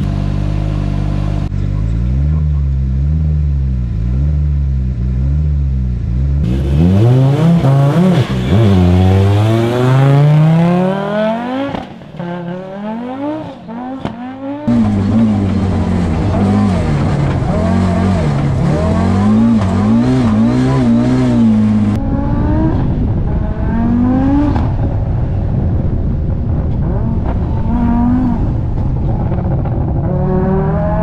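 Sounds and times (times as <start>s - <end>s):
rally car engine revving: 0.0s - 31.0s.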